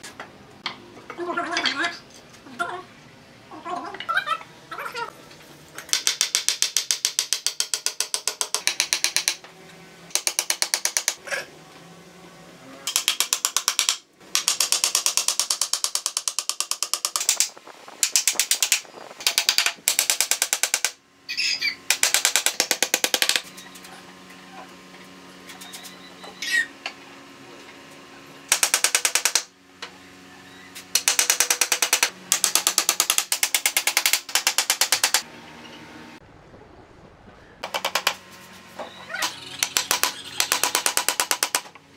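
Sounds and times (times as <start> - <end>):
hammer driving nails into wood: 5.9 - 9.4, 10.1 - 11.2, 12.9 - 21.0, 28.5 - 29.5, 31.0 - 35.2, 39.7 - 41.7.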